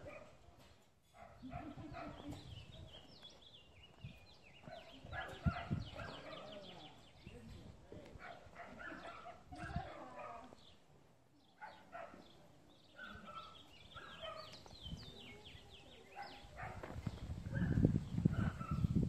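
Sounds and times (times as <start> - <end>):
faint dog barking and yelping: 17.5 - 18.9.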